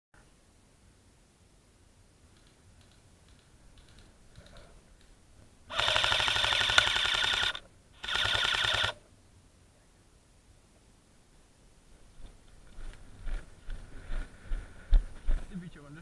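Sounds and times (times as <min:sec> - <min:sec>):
airsoft gun firing bursts: 0:05.7 - 0:09.0.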